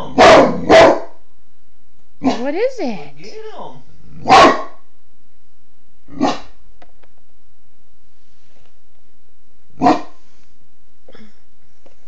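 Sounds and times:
dog barking: 0:00.0 - 0:01.2, 0:02.2 - 0:02.4, 0:04.2 - 0:04.8, 0:06.2 - 0:06.6, 0:09.8 - 0:10.2.

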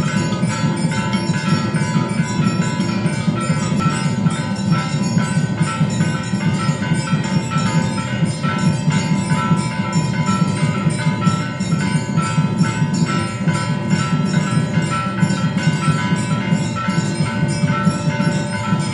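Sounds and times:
temple bells ringing: 0:00.0 - 0:18.9.

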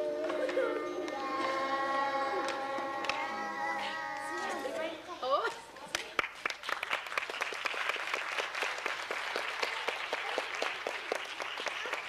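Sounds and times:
audience applauding: 0:06.1 - 0:12.0.

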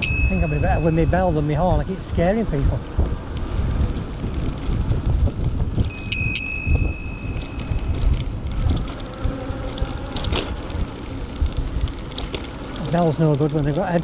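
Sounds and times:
bicycle bell dings: 0:00.0 - 0:01.4, 0:05.8 - 0:08.0
wind rumble on microphone: 0:00.0 - 0:14.0.

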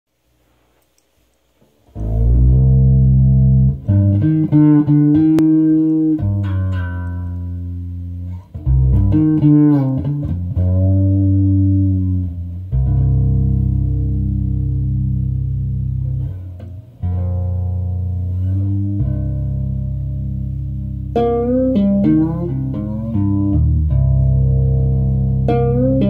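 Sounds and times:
sliding deep bass notes: 0:02.0 - 0:26.0.

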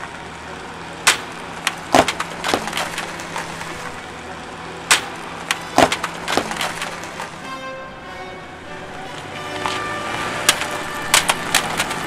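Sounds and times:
keyboard cracking under car tyres: 0:01.0 - 0:04.1, 0:04.8 - 0:07.4, 0:09.0 - 0:12.0.

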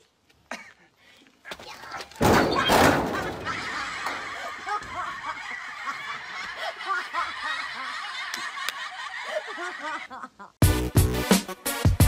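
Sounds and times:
crowd laughing: 0:02.5 - 0:10.6.

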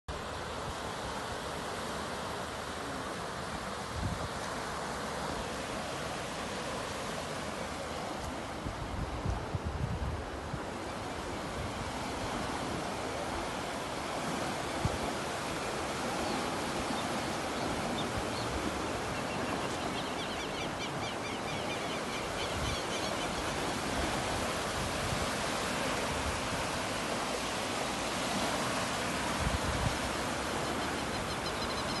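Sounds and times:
floodwater rushing: 0:00.1 - 0:32.0
wind buffeting microphone: 0:08.6 - 0:10.8, 0:29.2 - 0:30.3.

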